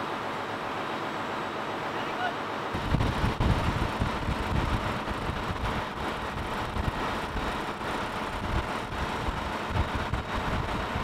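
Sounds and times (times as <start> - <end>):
machinery rushing noise: 2.7 - 11.0.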